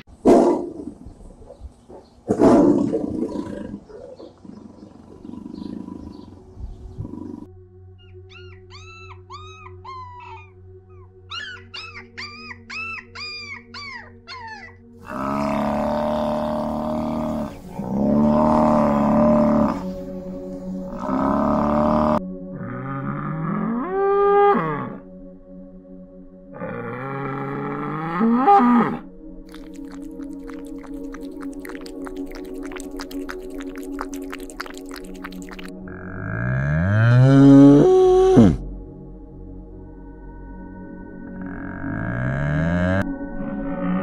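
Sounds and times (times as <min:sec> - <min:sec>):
puppies whining: 0:08.0 - 0:14.8
water buffalo lowing: 0:14.4 - 0:25.0, 0:26.6 - 0:38.6
tiger roaring: 0:15.0 - 0:20.0, 0:20.9 - 0:25.0, 0:35.9 - 0:38.6.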